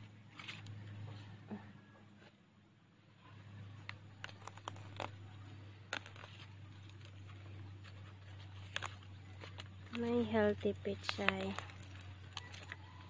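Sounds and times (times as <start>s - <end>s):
steady low hum: 0.0s - 13.0s
crisp stalks snapping: 3.8s - 13.0s.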